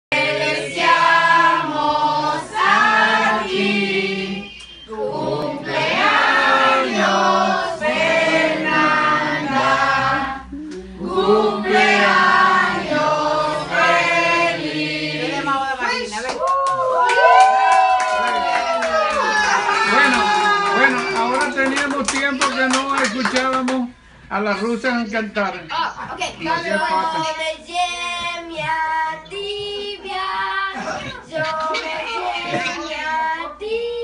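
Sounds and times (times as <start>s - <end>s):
group singing a celebration song: 0.1s - 15.9s, 26.5s - 34.0s.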